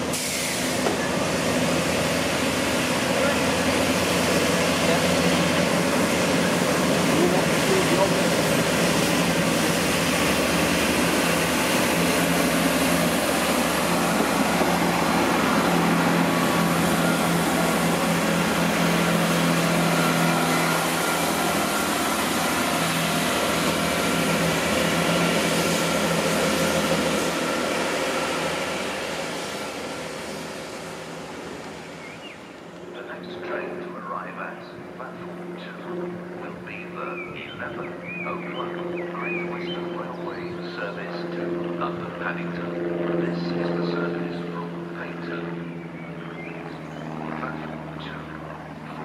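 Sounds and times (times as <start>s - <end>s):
train diesel engines droning: 0.0s - 49.0s.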